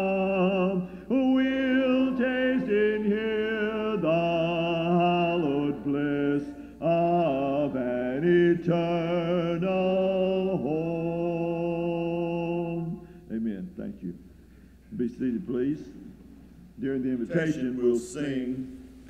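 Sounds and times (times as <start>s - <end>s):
voices singing a hymn: 0.0s - 13.1s, 16.8s - 18.8s.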